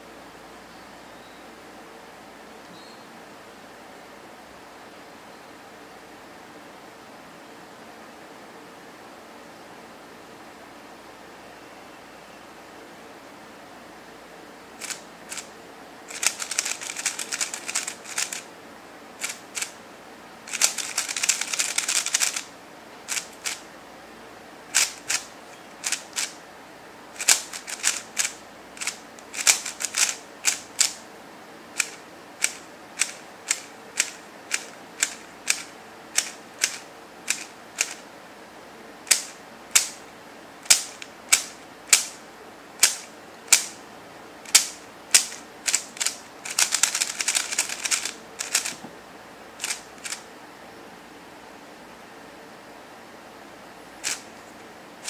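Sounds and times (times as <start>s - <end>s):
plastic puzzle cube clicking: 14.8s - 15.5s, 16.1s - 18.4s, 19.2s - 19.7s, 20.5s - 22.5s, 23.1s - 23.6s, 24.8s - 26.4s, 27.2s - 31.0s, 31.8s - 38.0s, 39.1s - 40.0s, 40.6s - 42.2s, 42.8s - 43.8s, 44.5s - 48.8s, 49.6s - 50.2s, 54.0s - 54.2s.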